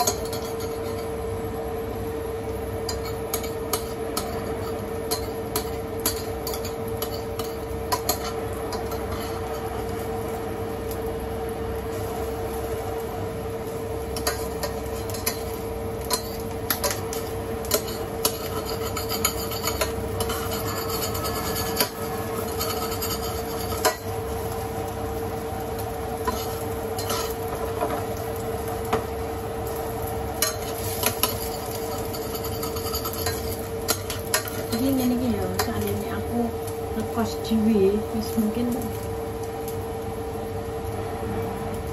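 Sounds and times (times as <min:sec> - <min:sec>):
utensils scraping and clinking dishes: 0:00.0 - 0:01.1, 0:02.9 - 0:09.7, 0:14.2 - 0:24.1, 0:26.2 - 0:27.5, 0:30.4 - 0:36.0
steady hum: 0:00.0 - 0:41.9.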